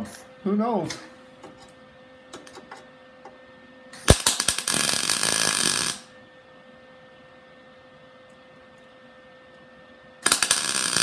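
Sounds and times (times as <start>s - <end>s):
welding arc crackling sizzle: 3.9s - 6.2s, 10.2s - 11.0s
welding arc pops: 4.0s - 6.1s, 10.2s - 11.0s.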